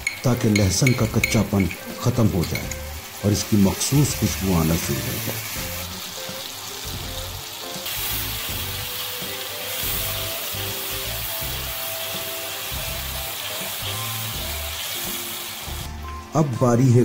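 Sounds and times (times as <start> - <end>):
oil sizzling with frying food: 0.0 - 17.0
background music with bass: 1.1 - 9.0, 9.8 - 11.8, 12.7 - 14.8, 15.7 - 17.0.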